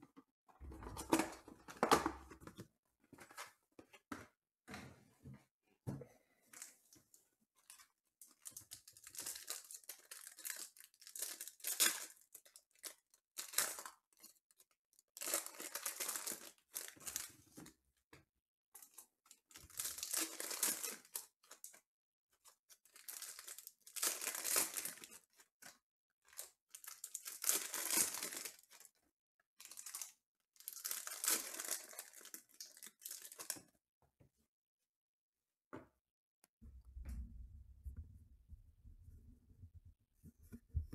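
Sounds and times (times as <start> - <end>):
foil wrappers tearing and crinkling: 9.0 - 12.2, 19.6 - 21.2, 22.9 - 25.2, 26.7 - 28.7, 29.7 - 33.6.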